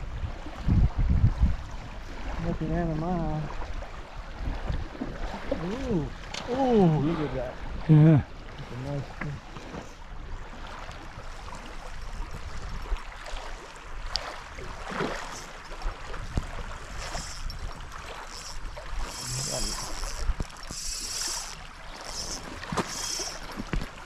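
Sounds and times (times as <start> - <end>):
wind: 0.0 - 24.0
waves washing onto gravel: 14.3 - 24.0
fishing reel winding: 15.1 - 15.8, 16.8 - 23.8
high-pitched hissing bursts: 19.1 - 20.2, 20.8 - 23.5.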